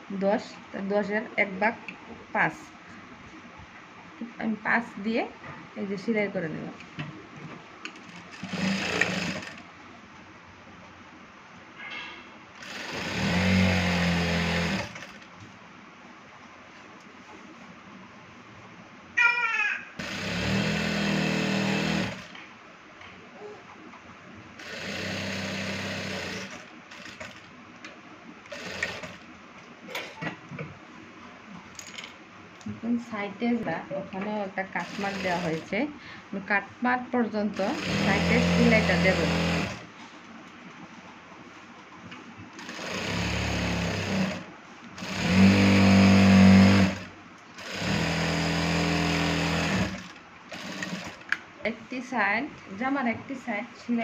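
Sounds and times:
sewing machine running: 8.3 - 9.6, 12.6 - 15.2, 20.0 - 22.4, 24.6 - 27.5, 28.5 - 29.2, 34.8 - 35.7, 37.6 - 39.9, 42.6 - 51.3.

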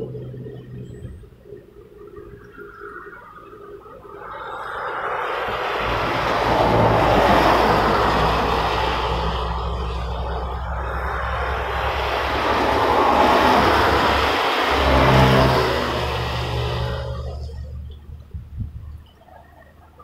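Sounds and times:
low engine hum: 0.0 - 20.0
tyres hissing on wet road: 3.8 - 17.8.

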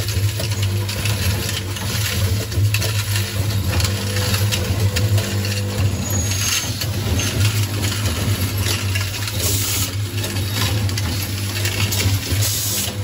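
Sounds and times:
machine clicks and clatter: 0.0 - 13.0
machine humming: 0.0 - 13.0.

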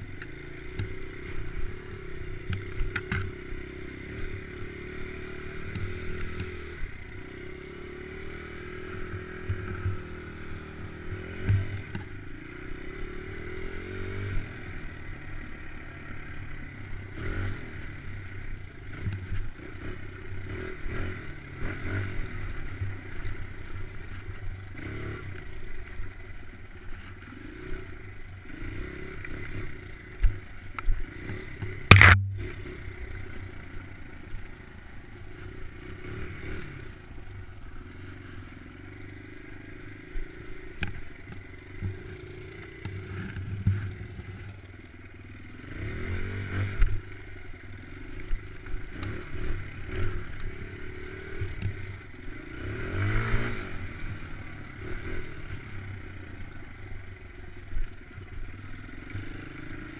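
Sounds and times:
dirt bike engine revving: 0.0 - 57.7, 58.4 - 59.9
sharp clack: 31.9 - 32.6.

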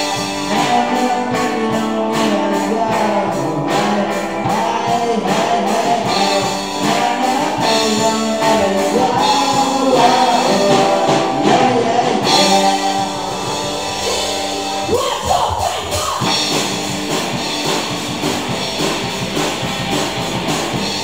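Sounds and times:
man singing lead vocals: 0.0 - 16.6
electric guitar: 0.0 - 21.0.

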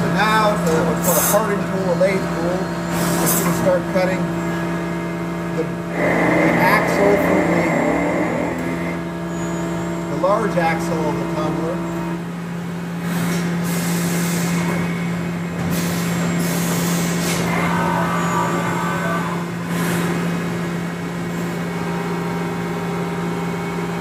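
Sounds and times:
machine spindle hum: 5.7 - 10.1
hissing metal cutting noise: 5.9 - 9.2.

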